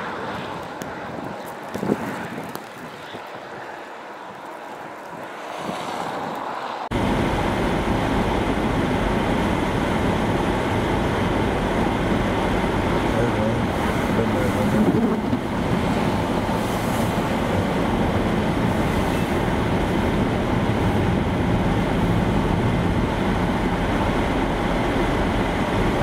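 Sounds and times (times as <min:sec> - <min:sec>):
road noise inside vehicle: 0:00.0 - 0:26.0
truck driving alongside: 0:06.0 - 0:26.0.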